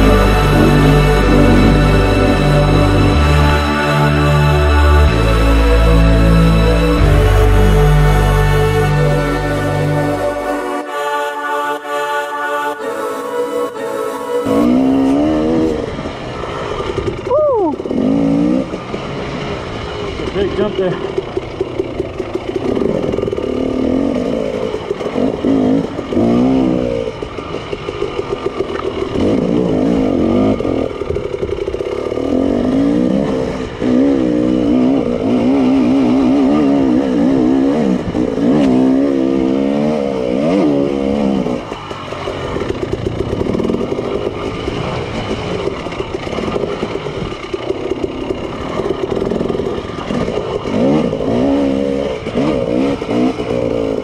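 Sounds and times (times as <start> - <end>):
dirt bike engine revving: 0.0 - 11.4, 13.8 - 54.0
bike rattling: 15.2 - 54.0.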